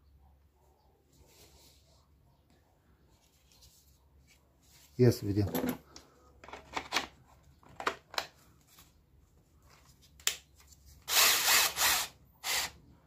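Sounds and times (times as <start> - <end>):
drill motor running: 11.1 - 12.8.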